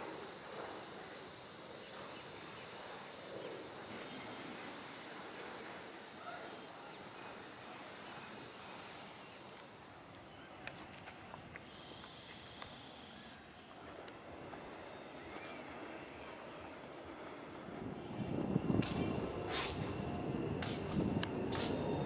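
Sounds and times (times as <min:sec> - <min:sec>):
steady outdoor hiss: 0:00.0 - 0:22.0
high insect trill: 0:09.2 - 0:22.0.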